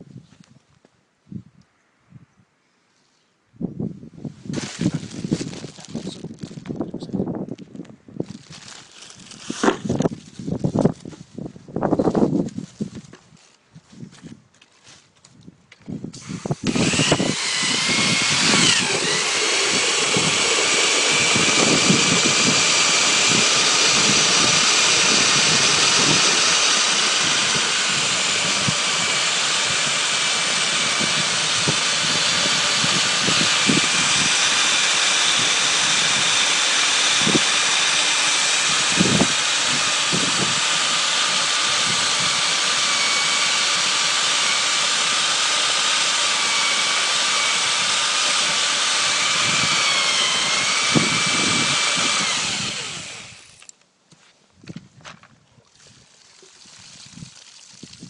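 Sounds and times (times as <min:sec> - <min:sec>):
machine drone: 0:16.6 - 0:53.7.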